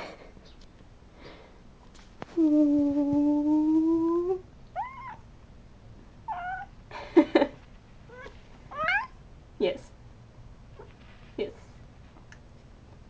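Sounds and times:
cat meowing: 0:04.8 - 0:05.2, 0:06.3 - 0:06.7, 0:08.1 - 0:09.2
cat yowling: 0:04.8 - 0:05.2, 0:06.3 - 0:06.7, 0:08.1 - 0:09.2.

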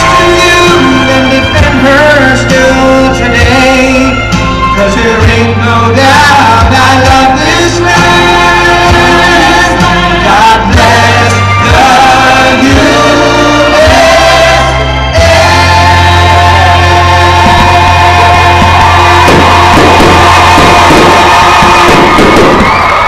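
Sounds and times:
deep bass: 0:00.0 - 0:23.0
loud music with singing: 0:00.0 - 0:23.0.

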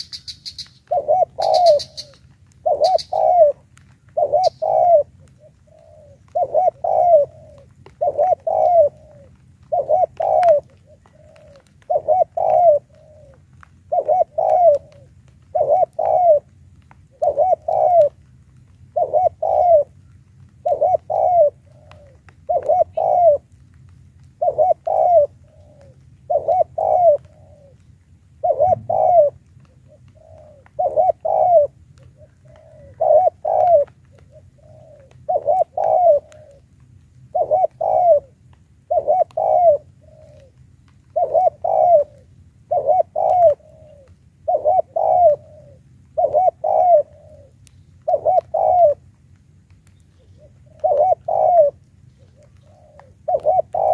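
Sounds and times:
dove cooing: 0:00.0 - 0:23.6, 0:24.2 - 0:49.2, 0:49.8 - 0:53.9.

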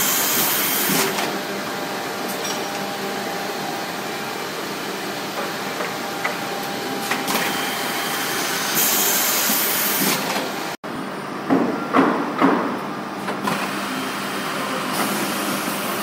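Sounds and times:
boring machine running: 0:00.0 - 0:10.8.

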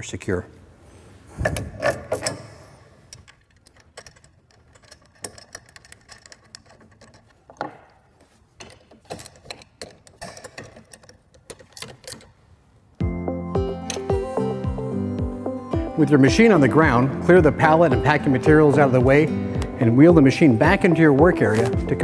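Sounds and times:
wrench clicking: 0:03.1 - 0:07.4, 0:08.6 - 0:12.4.

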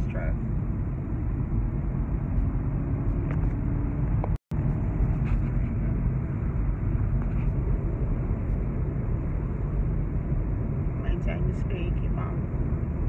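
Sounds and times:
car road and engine noise: 0:00.0 - 0:13.0.

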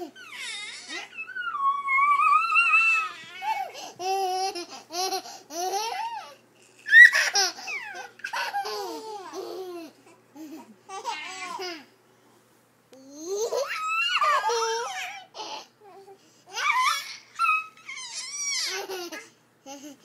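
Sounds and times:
toddler vocalising: 0:00.0 - 0:03.8
baby laughing: 0:00.0 - 0:11.9, 0:16.5 - 0:20.0
toddler squealing: 0:00.2 - 0:03.7.

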